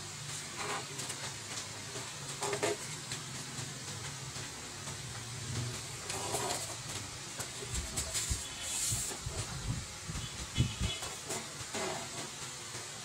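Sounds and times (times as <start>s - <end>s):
room tone hum and hiss: 0.0s - 13.0s.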